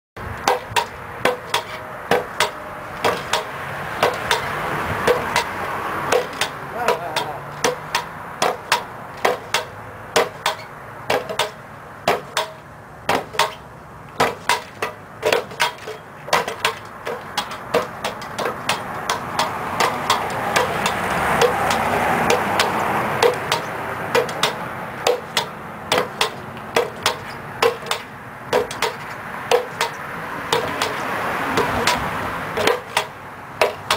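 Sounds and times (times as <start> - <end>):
background rush: 0.2 - 12.0
pogo stick clanking on pavement: 0.2 - 33.9.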